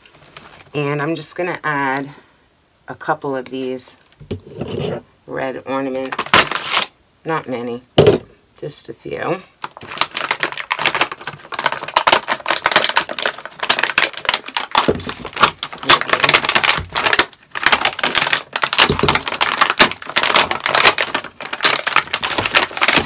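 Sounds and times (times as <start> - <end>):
plastic packaging crinkling: 5.9 - 6.9, 9.6 - 23.0.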